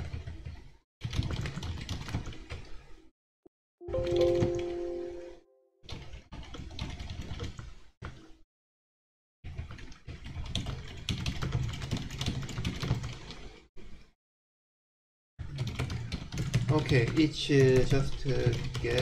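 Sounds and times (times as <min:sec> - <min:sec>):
typing on computer keyboard: 0:01.0 - 0:02.4, 0:10.2 - 0:13.2, 0:15.5 - 0:19.0.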